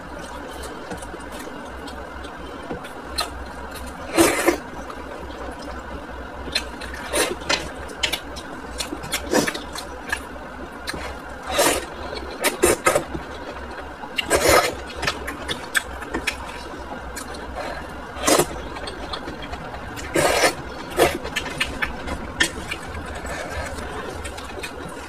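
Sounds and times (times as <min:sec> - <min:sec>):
low steady hum: 0:00.0 - 0:25.0
person slurping noodles: 0:11.0 - 0:13.0, 0:14.2 - 0:14.8, 0:20.0 - 0:21.6.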